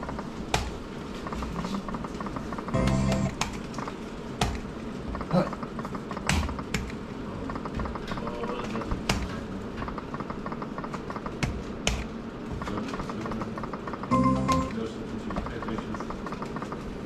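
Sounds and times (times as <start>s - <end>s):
room noise: 0.0s - 17.0s
button clicks and taps: 2.7s - 3.6s, 14.1s - 14.8s.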